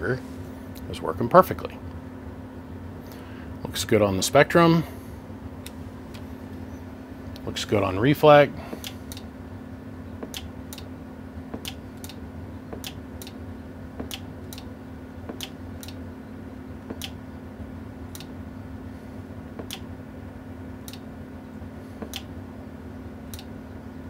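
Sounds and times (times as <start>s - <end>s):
low electrical hum: 0.0s - 24.0s
sharp clicks: 8.7s - 9.3s, 10.2s - 10.9s, 11.5s - 13.4s, 14.0s - 14.7s, 15.3s - 16.0s, 16.9s - 17.2s, 18.1s - 18.3s, 19.6s - 19.9s, 20.8s - 21.0s, 22.0s - 22.3s, 23.3s - 23.5s.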